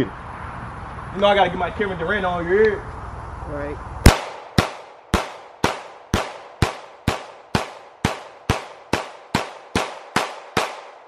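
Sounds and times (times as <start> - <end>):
pistol shots: 4.0 - 11.0.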